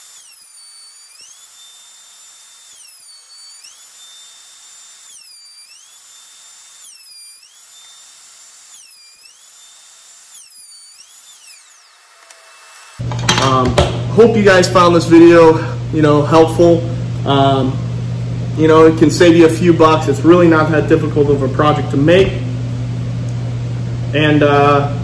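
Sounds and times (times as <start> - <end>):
wood router whining: 0.0 - 14.0.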